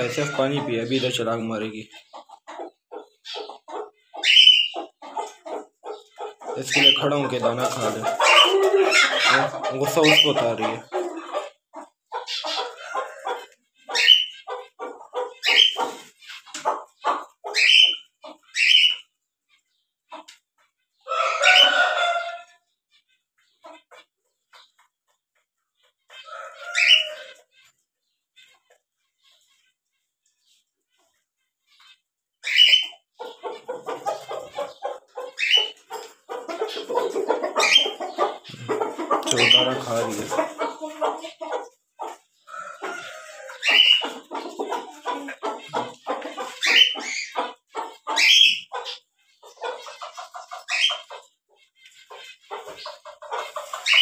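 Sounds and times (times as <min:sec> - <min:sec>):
hen clucking: 0:00.0 - 0:54.0
rising animal calls: 0:08.2 - 0:11.5.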